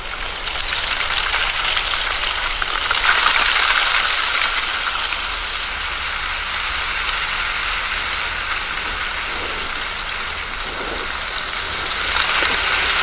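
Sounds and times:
wind on microphone: 5.0s - 13.0s.

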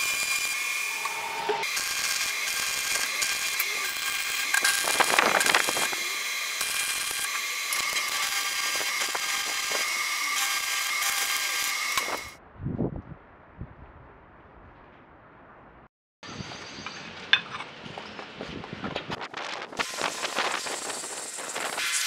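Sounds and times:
welding arc crackling and hissing: 0.0s - 12.4s, 19.1s - 22.0s.

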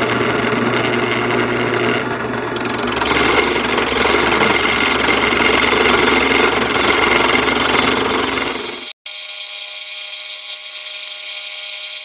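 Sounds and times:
drill press milling metal: 0.0s - 8.9s.

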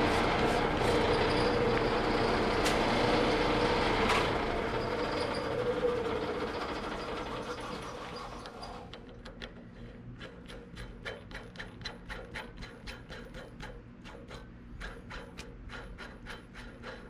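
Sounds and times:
metal lathe humming: 0.0s - 8.9s.

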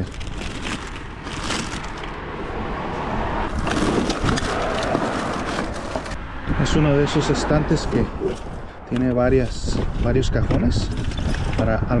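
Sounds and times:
plastic bag rustling: 0.0s - 2.2s, 3.5s - 6.2s.

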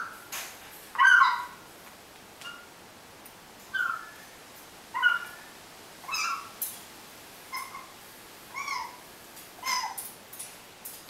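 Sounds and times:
parrot squeaky calls: 1.0s - 1.6s, 3.7s - 4.2s, 5.0s - 6.6s, 7.5s - 7.9s, 8.5s - 9.0s, 9.6s - 10.0s.

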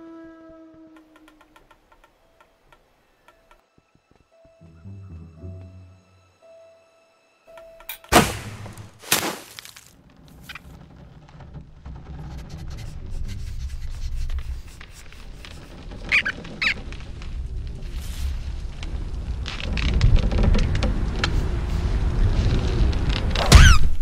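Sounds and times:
hard hit: 8.1s - 9.7s
quick high squeaks: 15.3s - 16.8s
low rumble: 16.8s - 24.0s.

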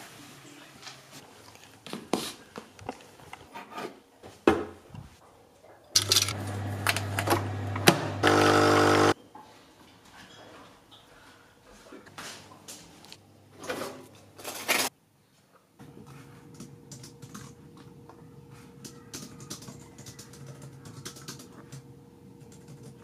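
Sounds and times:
coffee machine humming: 6.0s - 9.2s
pump buzzing: 6.4s - 9.2s.

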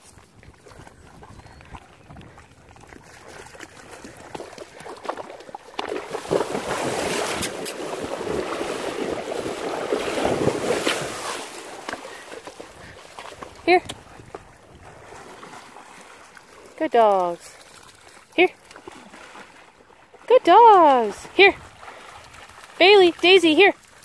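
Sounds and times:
horse splashing through water: 0.0s - 24.0s.

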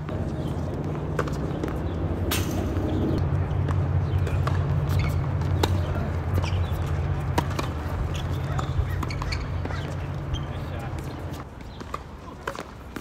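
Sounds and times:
racquets striking tennis ball: 0.0s - 13.0s
ball bouncing: 7.2s - 10.2s.

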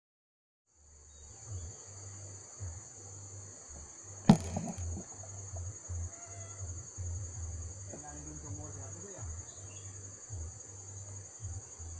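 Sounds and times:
insects droning: 0.7s - 11.9s
rumbling bumps on microphone: 4.3s - 5.7s.

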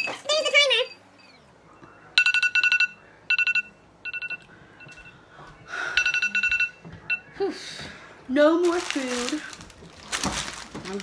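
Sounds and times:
rapid electronic alarm beeps: 0.8s - 5.2s, 5.9s - 7.3s.

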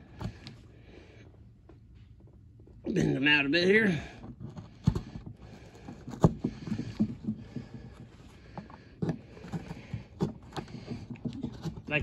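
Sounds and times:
rustling and scraping on cardboard: 4.2s - 12.0s.

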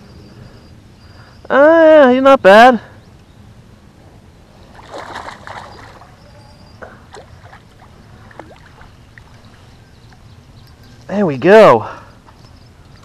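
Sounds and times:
fish splashing in water: 4.7s - 6.2s, 6.8s - 9.3s.

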